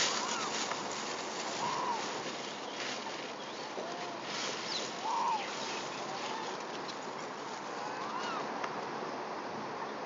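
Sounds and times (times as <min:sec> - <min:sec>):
monkey coo calls: 0:00.0 - 0:00.8, 0:01.5 - 0:06.6
steady background noise: 0:00.0 - 0:10.0.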